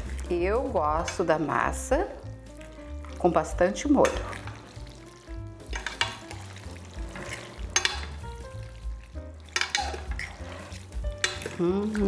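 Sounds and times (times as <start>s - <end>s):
forks stirring pasta in pot: 0.0s - 12.0s
metal clinking against pot: 7.2s - 8.2s, 9.5s - 10.4s, 11.2s - 11.6s.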